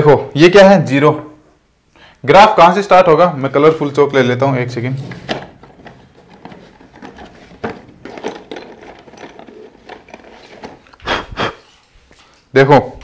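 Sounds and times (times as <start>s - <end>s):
chalk sticks clicking and rattling: 5.6s - 11.0s.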